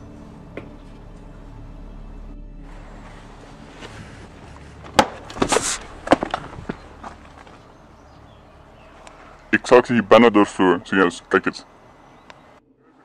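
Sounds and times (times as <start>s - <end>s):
footsteps on wooden planks: 3.0s - 7.7s
short scrape on wood: 5.4s - 5.9s.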